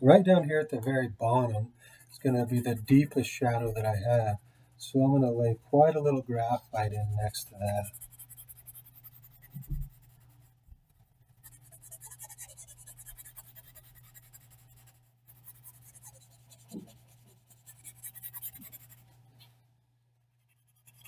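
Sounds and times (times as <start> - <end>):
pencil scratching on paper: 1.4 - 4.3, 6.9 - 10.5, 11.3 - 19.2, 20.3 - 21.0.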